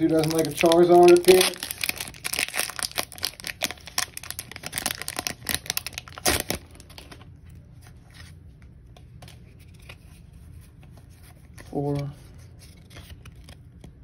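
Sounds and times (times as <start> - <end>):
cards being handled: 0.0 - 3.8, 7.8 - 14.0
foil wrapper crinkling and tearing: 0.0 - 7.3.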